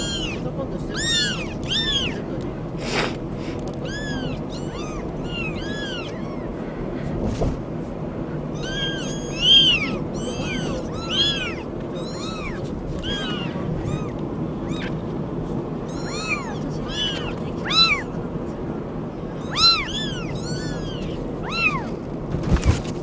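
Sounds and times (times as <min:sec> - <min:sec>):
kittens mewing: 0:00.0 - 0:06.8, 0:08.4 - 0:15.0, 0:15.8 - 0:18.2, 0:19.3 - 0:22.0
low background rumble: 0:00.0 - 0:23.0.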